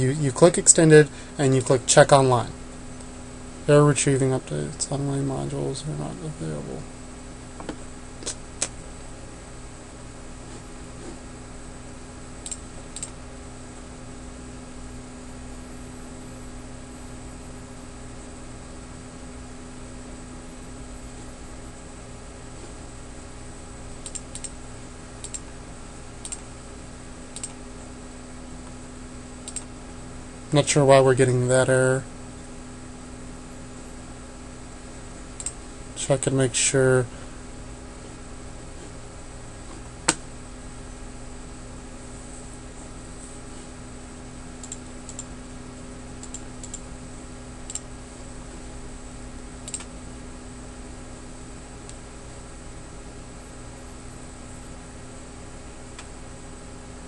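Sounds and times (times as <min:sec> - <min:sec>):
electrical hum and hiss: 0:00.0 - 0:57.0
computer mouse clicking: 0:12.4 - 0:13.2, 0:24.0 - 0:24.6, 0:25.2 - 0:25.5, 0:26.2 - 0:26.5, 0:27.3 - 0:27.6, 0:29.4 - 0:29.7, 0:35.4 - 0:35.6, 0:44.6 - 0:45.3, 0:46.2 - 0:46.8, 0:49.6 - 0:49.9.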